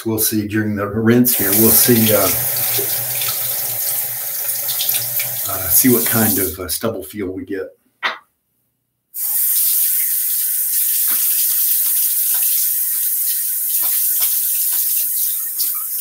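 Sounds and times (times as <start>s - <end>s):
tap running into sink: 1.3s - 6.5s
water splashes: 1.3s - 6.6s.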